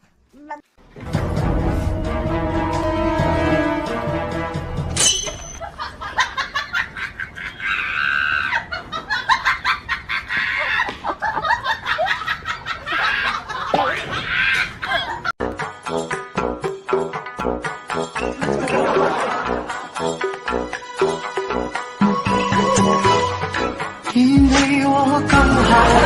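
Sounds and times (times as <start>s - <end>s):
people laughing: 5.6s - 15.3s, 18.3s - 20.0s, 25.3s - 26.0s.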